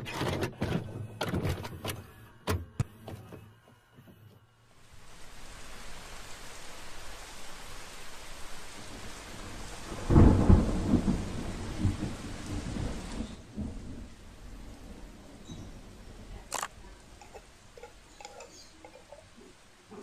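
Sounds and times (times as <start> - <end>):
steady rain: 4.5 - 20.0
thunder clap and rumble: 8.7 - 17.1.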